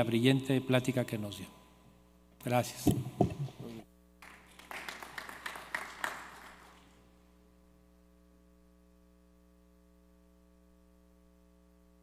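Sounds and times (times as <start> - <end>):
faint electrical hum: 0.0 - 12.0
applause: 4.2 - 7.1.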